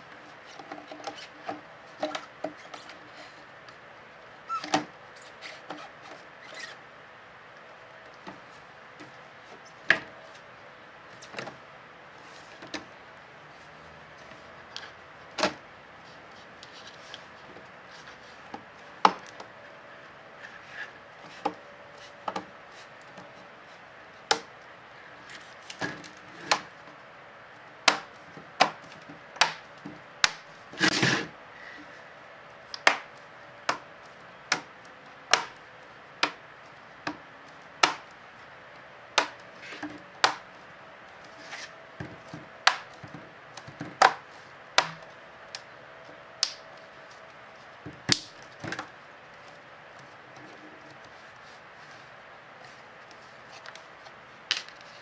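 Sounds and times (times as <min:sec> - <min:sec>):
crackling plastic snap: 0:46.4 - 0:46.6, 0:48.1 - 0:48.9.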